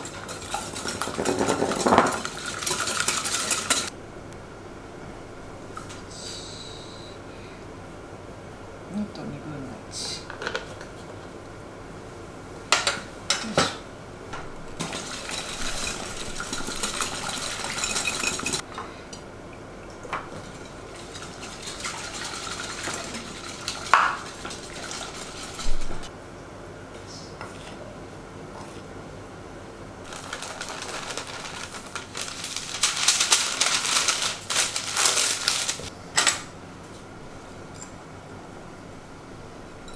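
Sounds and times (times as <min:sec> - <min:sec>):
utensils and bottles clinking: 0:00.0 - 0:03.9, 0:14.8 - 0:18.6, 0:20.2 - 0:26.1
whisk beating in glass bowl: 0:00.0 - 0:03.9, 0:14.8 - 0:18.6, 0:20.3 - 0:26.0.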